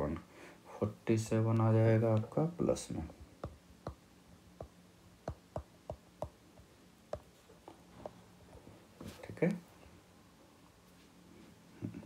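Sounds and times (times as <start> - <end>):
faint steady hum: 0.0 - 12.0
stylus tapping on glass screen: 3.4 - 4.0, 4.6 - 7.3.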